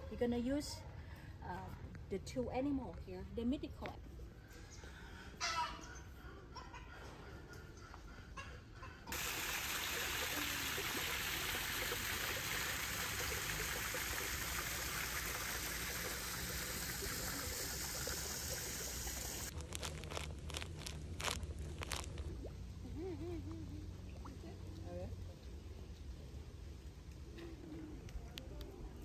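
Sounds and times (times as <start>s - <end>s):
water trickling into pond: 9.1s - 25.0s
plastic bag crinkling: 19.4s - 22.4s.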